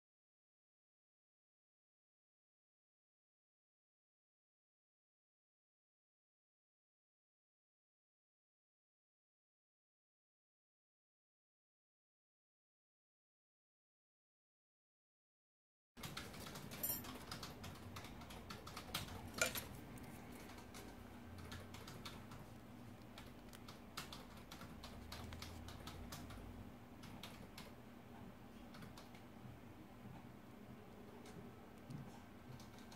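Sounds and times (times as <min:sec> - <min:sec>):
low steady hum: 0:16.0 - 0:32.9.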